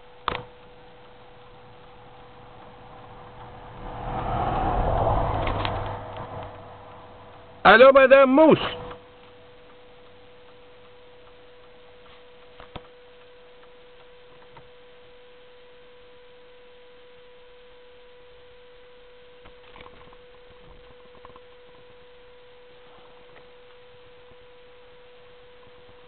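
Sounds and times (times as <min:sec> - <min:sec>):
faint ticks: 0:08.8 - 0:14.7.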